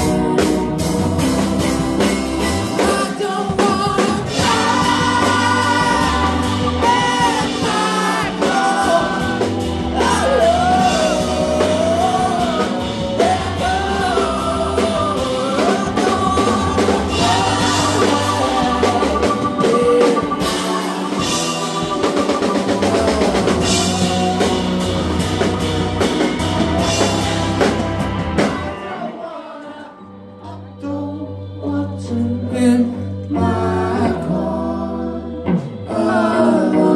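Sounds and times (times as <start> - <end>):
bass: 0.0 - 29.0, 30.0 - 36.9
drum kit: 0.0 - 29.0
electric guitars: 0.0 - 29.1
person singing lead vocal: 2.6 - 26.0, 28.6 - 36.9.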